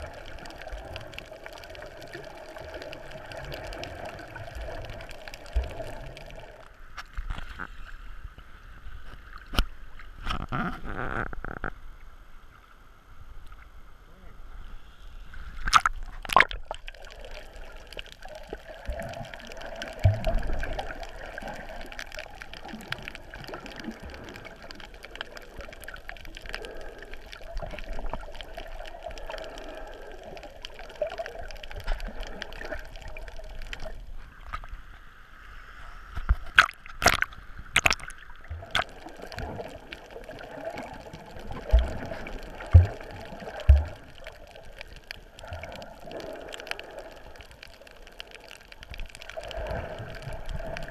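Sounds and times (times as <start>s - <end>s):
muffled underwater gurgling: 37.8s - 48.4s.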